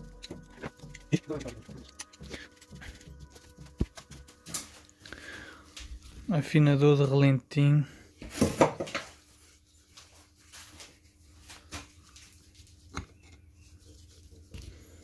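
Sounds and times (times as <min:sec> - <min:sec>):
screwdriver clicking and scraping: 0:00.0 - 0:04.2.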